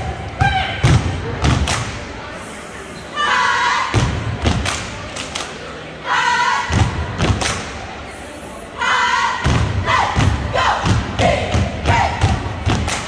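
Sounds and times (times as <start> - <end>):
group shouting a chant: 8.8 - 12.4.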